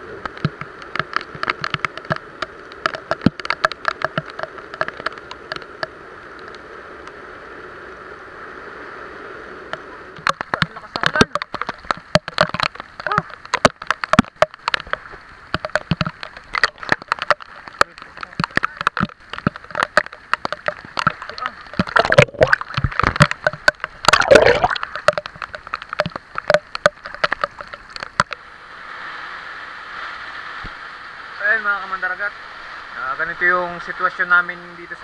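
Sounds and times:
water sloshing and gurgling: 0.0 - 6.7, 9.6 - 29.3
heavy rain on water surface: 0.0 - 35.0.

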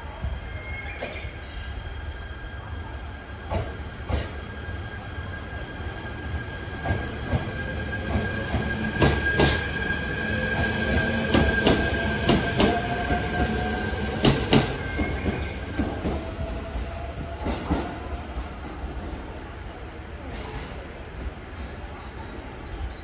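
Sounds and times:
train wheels clacking: 6.8 - 9.8, 10.6 - 16.3.

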